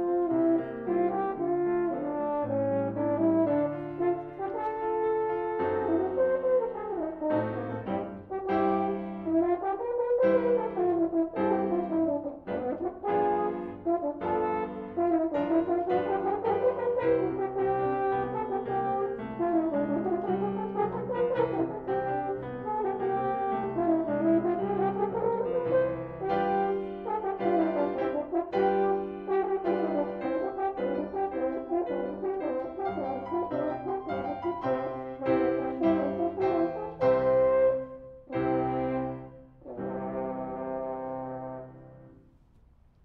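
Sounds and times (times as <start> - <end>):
french horn: 0.0 - 42.6
piano: 0.0 - 43.0.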